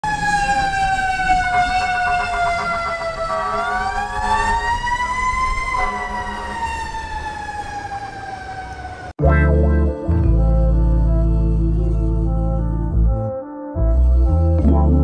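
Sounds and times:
fire truck siren wailing: 0.0 - 9.2.

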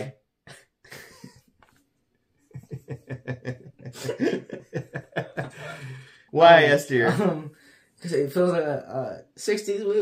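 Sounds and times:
people laughing: 2.5 - 6.1.

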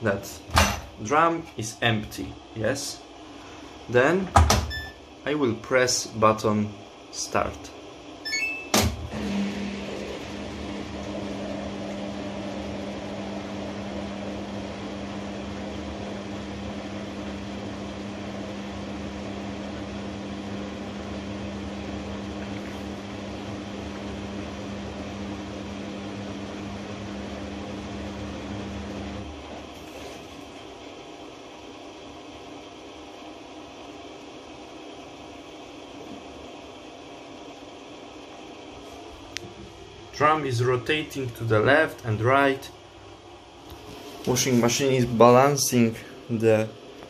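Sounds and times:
washing machine hum: 0.0 - 47.0
washing machine click: 4.3 - 4.8, 8.3 - 9.2.

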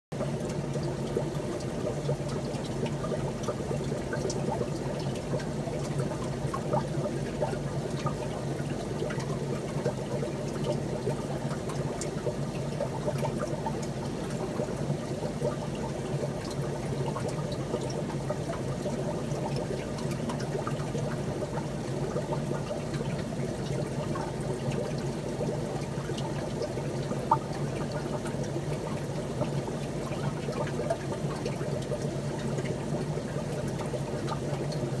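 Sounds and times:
running water trickling: 0.2 - 35.0.

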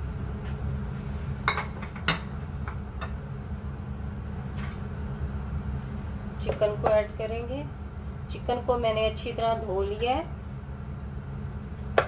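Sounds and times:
steady low hum: 0.0 - 12.0
dishes clinking: 1.5 - 2.3.

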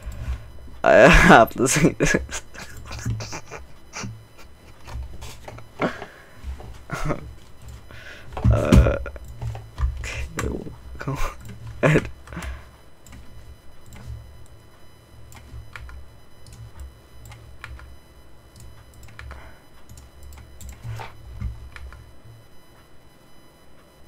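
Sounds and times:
low steady hum: 0.0 - 24.0
keyboard and mouse clicks: 18.5 - 22.0.

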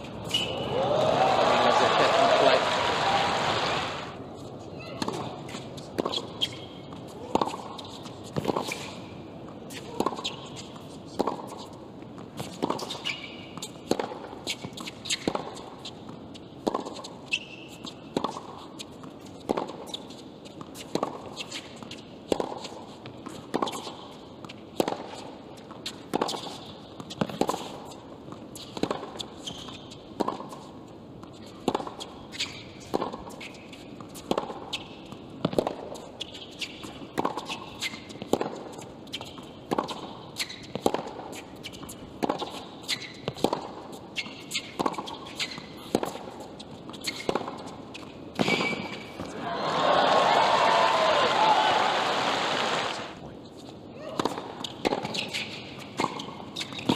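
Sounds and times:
racquet hitting tennis ball: 39.6 - 41.5.

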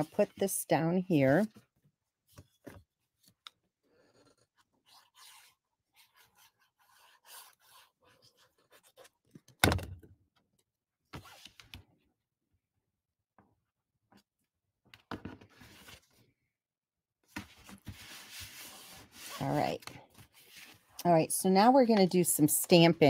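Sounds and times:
paper rustling and scraping: 4.1 - 9.2, 15.5 - 16.2, 17.4 - 20.9.

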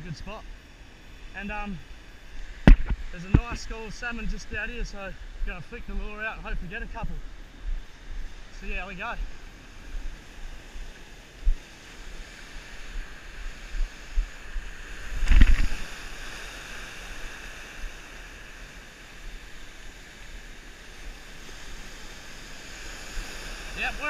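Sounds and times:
surf washing in shallow water: 0.0 - 24.0
wind buffeting microphone: 2.5 - 8.5, 9.2 - 18.0.

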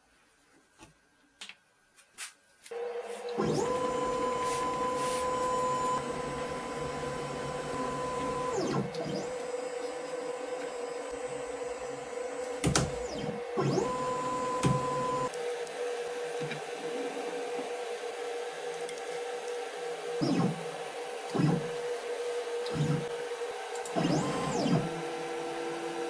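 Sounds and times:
motor hum: 2.7 - 18.3, 18.9 - 26.0
stepper motors whining: 2.9 - 15.4, 20.2 - 20.7, 22.6 - 26.0.

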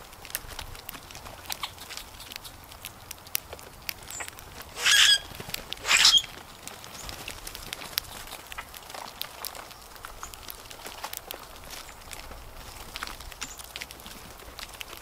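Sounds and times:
birds pecking and hopping in leaves: 0.0 - 15.0
harsh bird calls: 4.1 - 6.4.

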